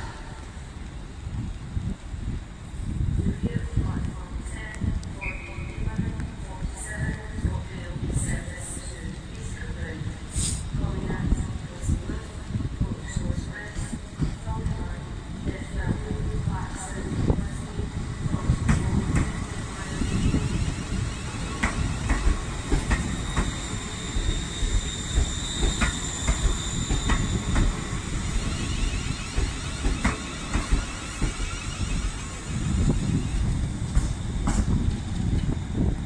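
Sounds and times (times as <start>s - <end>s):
train rumbling: 0.0s - 36.0s
faint high wheel squeal: 23.2s - 27.6s.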